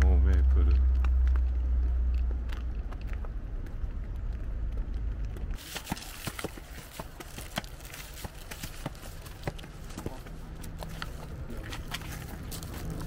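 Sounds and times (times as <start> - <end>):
low rumble: 0.0 - 5.6
footsteps crunching: 0.0 - 13.0.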